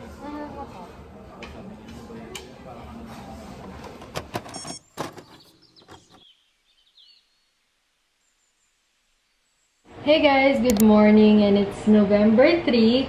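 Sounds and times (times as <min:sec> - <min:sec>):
restaurant background din: 0:00.0 - 0:04.2.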